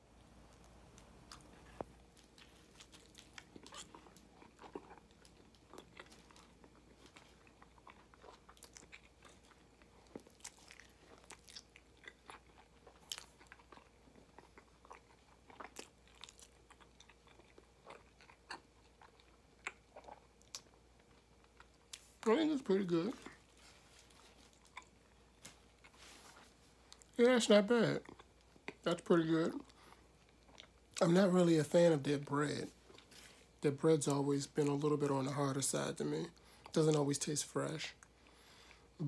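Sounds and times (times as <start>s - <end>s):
person chewing: 0.5s - 27.2s, 27.9s - 28.8s, 29.5s - 31.1s.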